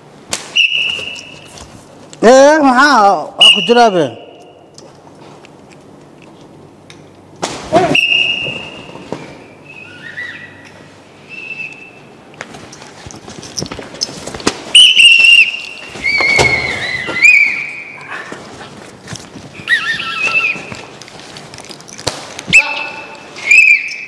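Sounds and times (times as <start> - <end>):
high whistle tones: 0.5 - 1.5, 3.4 - 4.6, 7.8 - 12.1, 14.7 - 18.0, 22.5 - 24.0
sharp knocks and slaps: 7.4 - 9.3, 22.0 - 22.6.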